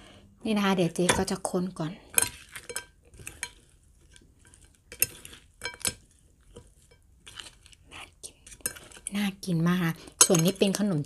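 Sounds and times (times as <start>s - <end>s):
salad being mixed: 0.4s - 11.0s
cutlery clinking against bowl: 2.1s - 7.5s, 10.0s - 11.0s.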